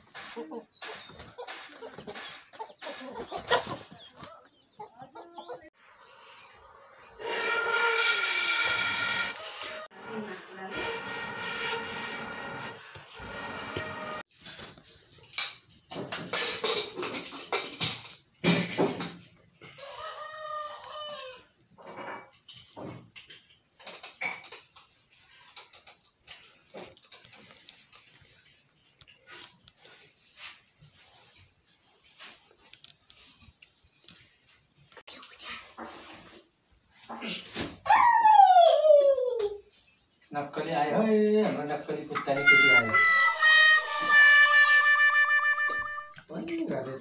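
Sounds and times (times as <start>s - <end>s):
chickens clucking: 0.0s - 7.4s
rooster crowing: 19.8s - 21.5s.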